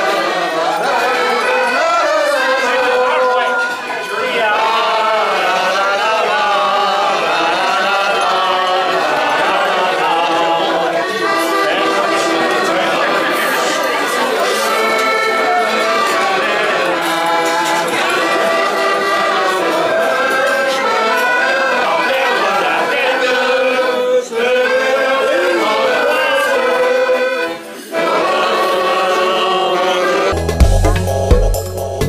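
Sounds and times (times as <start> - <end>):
people singing in chorus: 0.0 - 32.0
music with deep steady beat: 30.3 - 32.0.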